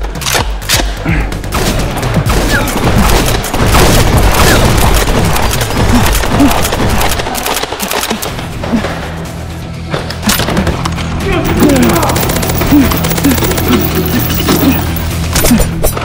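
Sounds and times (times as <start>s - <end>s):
rapid gunshot effects: 1.5s - 7.8s.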